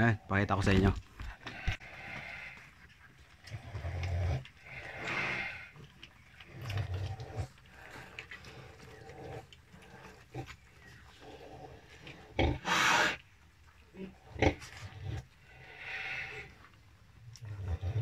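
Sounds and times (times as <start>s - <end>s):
pig grunts: 11.2s - 13.2s, 14.0s - 16.5s.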